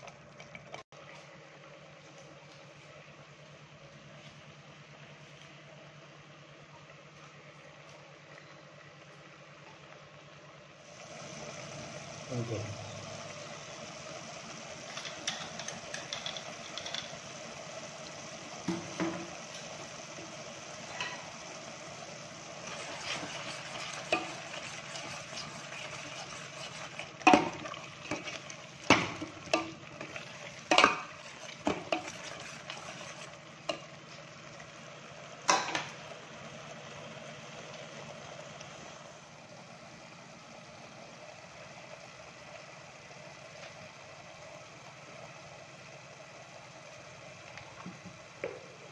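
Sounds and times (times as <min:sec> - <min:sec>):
food sizzling in a pot: 0:10.8 - 0:39.5.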